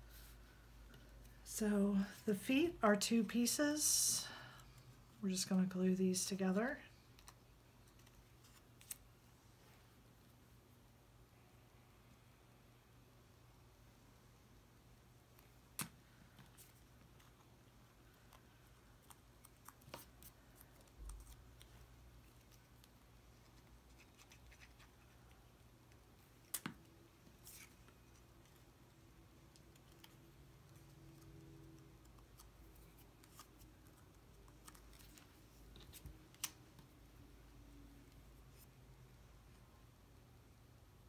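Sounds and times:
light clicks of cardstock pieces: 7.1s - 9.0s, 18.1s - 28.7s, 29.5s - 36.9s.

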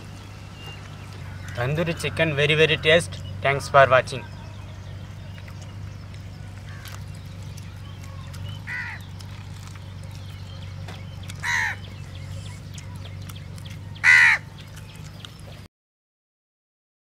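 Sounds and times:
crow cawing: 1.2s - 3.1s, 6.5s - 7.0s, 8.6s - 9.1s, 11.4s - 11.9s, 14.0s - 14.5s.

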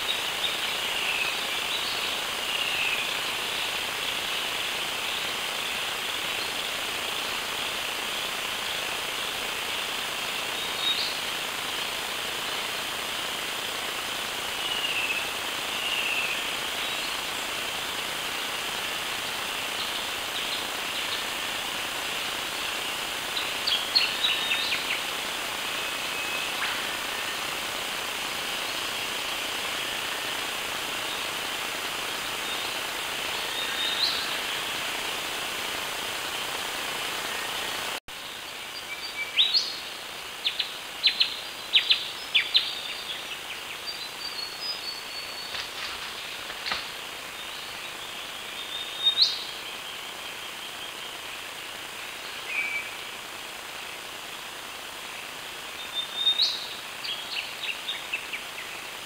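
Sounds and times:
steady high hiss: 0.0s - 59.0s.

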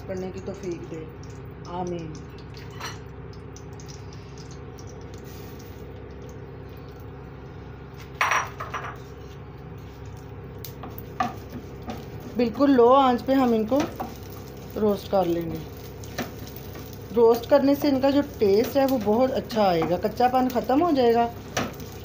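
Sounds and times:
steady low hum: 0.0s - 22.0s
kitchenware clinking: 8.2s - 9.0s.

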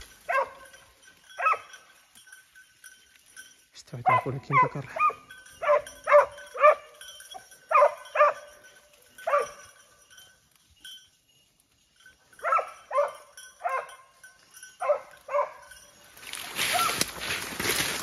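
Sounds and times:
dog barking: 0.3s - 0.7s, 1.4s - 1.7s, 4.0s - 7.0s, 7.7s - 8.6s, 9.2s - 9.6s, 12.4s - 14.1s, 14.8s - 15.8s.

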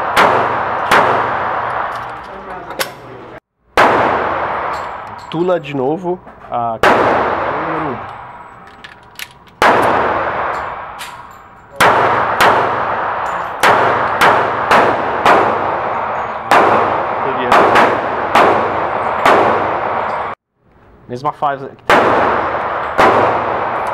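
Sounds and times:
pistol shots in indoor range: 0.0s - 2.0s, 3.7s - 5.1s, 9.6s - 20.4s, 21.9s - 23.9s.

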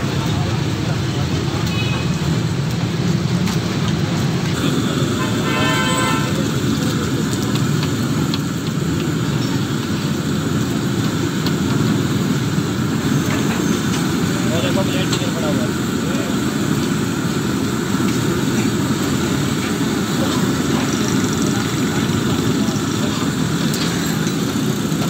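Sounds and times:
oil sizzling in wok: 0.0s - 25.0s
street traffic rumble: 0.0s - 25.0s
vehicle horn toot: 4.9s - 6.5s.

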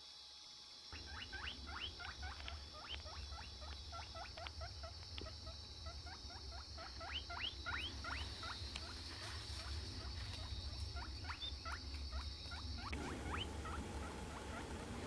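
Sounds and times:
steady high hiss: 0.0s - 15.0s
small animal squeaking: 1.0s - 9.0s, 9.6s - 14.7s.

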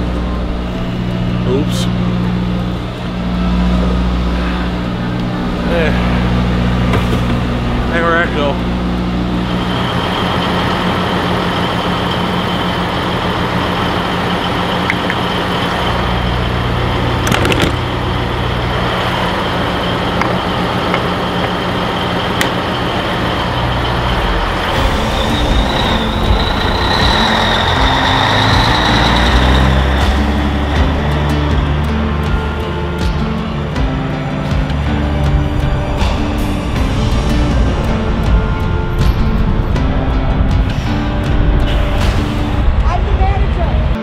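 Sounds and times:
faint high whine: 0.0s - 31.1s
diesel truck engine idling: 0.0s - 44.0s.

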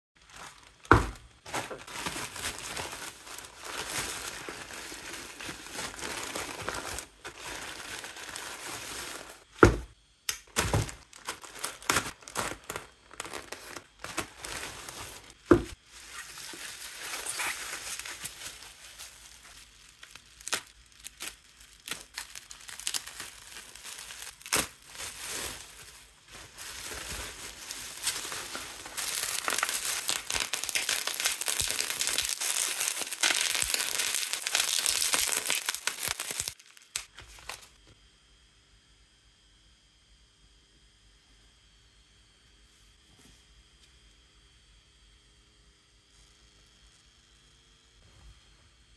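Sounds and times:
plastic bag crinkling and tearing: 0.2s - 9.5s, 10.4s - 37.7s
bubble wrap crinkling: 0.2s - 37.8s.

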